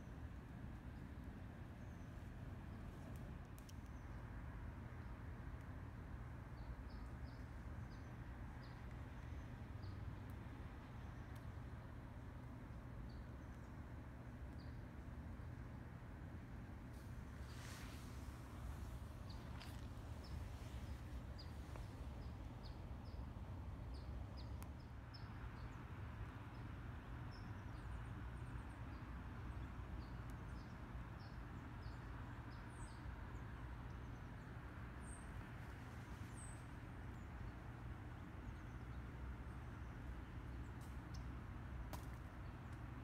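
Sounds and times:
steady low rumble: 14.8s - 24.9s
small birds chirping: 17.1s - 25.8s.

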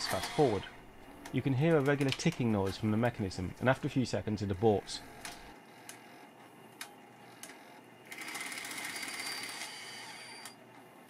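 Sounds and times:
tape winding whir: 0.0s - 3.2s, 4.6s - 11.0s
tape deck ticking: 0.0s - 3.9s, 4.5s - 6.0s.

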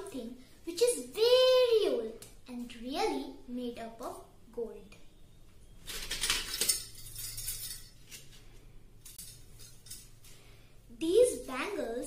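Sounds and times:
bangles clinking: 5.9s - 10.3s.

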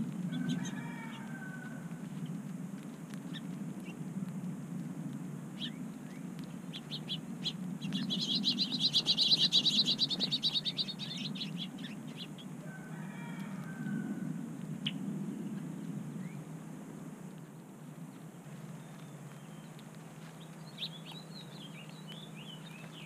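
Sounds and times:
songbird rapid trill: 5.5s - 12.8s, 18.1s - 23.0s.

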